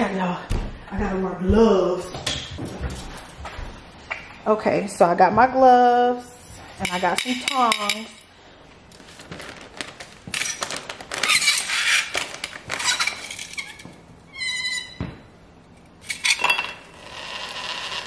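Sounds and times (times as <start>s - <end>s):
plastic bag rustling: 8.7s - 14.0s
metal tongs scraping dry ice: 16.0s - 18.0s.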